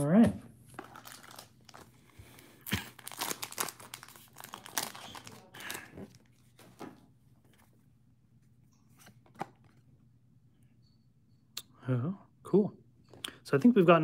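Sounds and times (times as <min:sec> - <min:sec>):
foil pack crinkling and rustling: 0:00.8 - 0:06.7.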